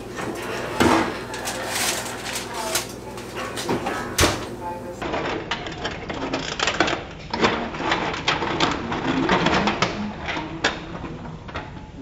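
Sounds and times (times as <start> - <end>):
aluminium foil crinkling: 0.2 - 3.7.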